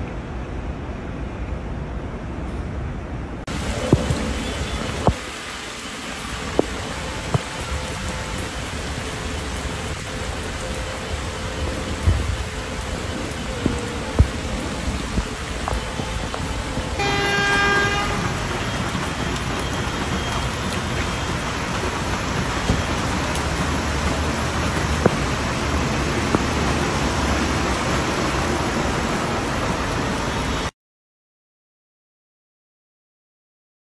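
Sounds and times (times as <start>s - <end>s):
heavy rain pouring: 3.4s - 30.7s
car horn honking: 17.0s - 18.8s.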